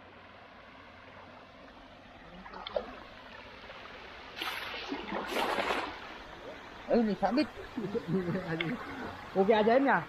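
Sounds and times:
creek water running: 0:00.0 - 0:10.0
water splashing: 0:02.2 - 0:10.0.

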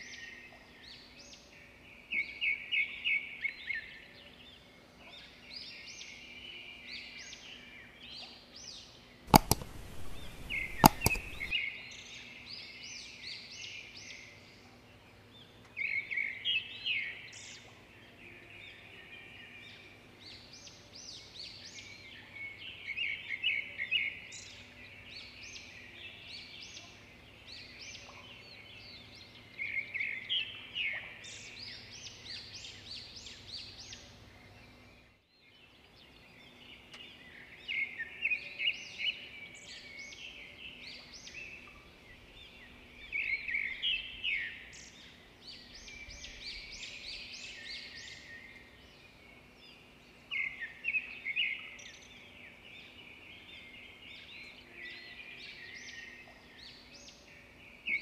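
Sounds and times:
small birds chirping: 0:05.2 - 0:11.6.

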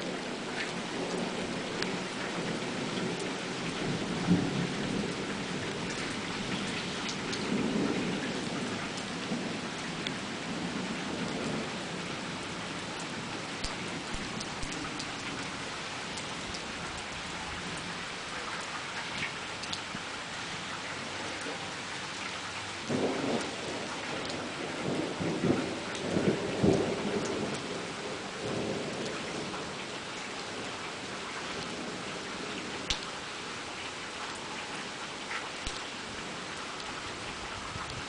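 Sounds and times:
heavy rain: 0:00.0 - 0:38.0
rolling thunder: 0:22.8 - 0:29.7
drips ticking: 0:32.8 - 0:33.2.

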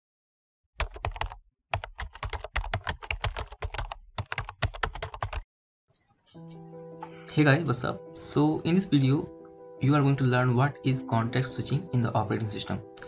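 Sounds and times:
computer keyboard typing: 0:00.8 - 0:05.4.

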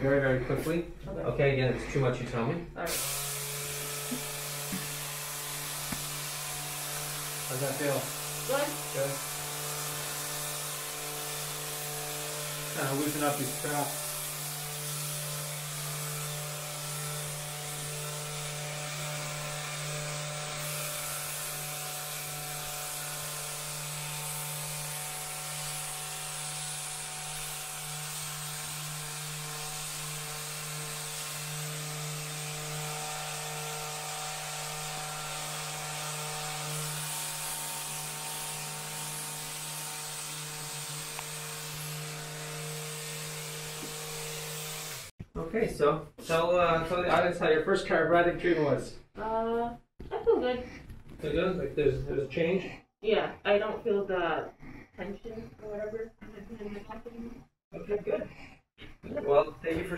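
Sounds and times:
massage device buzzing: 0:02.9 - 0:45.1.

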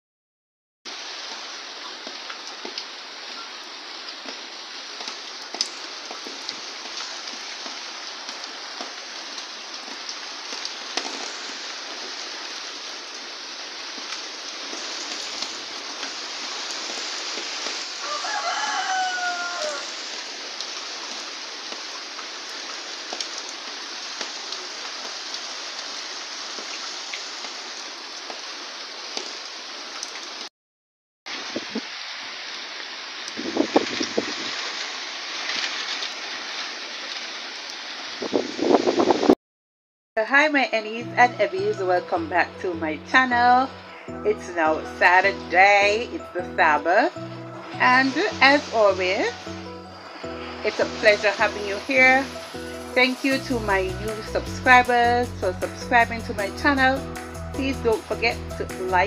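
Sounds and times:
steady rain falling: 0:00.9 - 0:30.5, 0:31.3 - 0:39.3, 0:40.4 - 0:59.0
rooster crowing: 0:18.0 - 0:20.1.

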